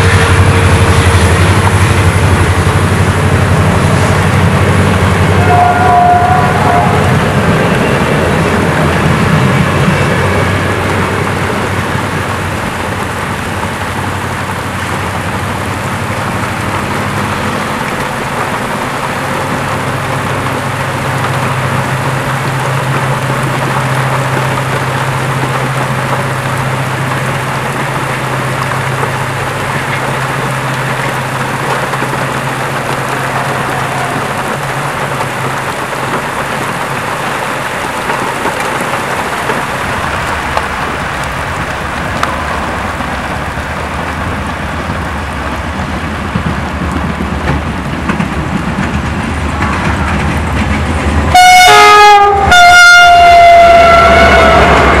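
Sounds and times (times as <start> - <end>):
heavy rain hissing: 0.0 - 55.0
locomotive engine rumble: 0.0 - 55.0
locomotive horn blasts: 5.3 - 8.0, 33.2 - 34.5, 51.3 - 55.0.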